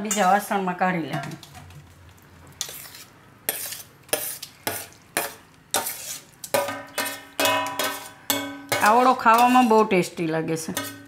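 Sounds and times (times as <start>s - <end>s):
spoon scraping steel plate: 2.6s - 9.9s, 10.7s - 11.0s.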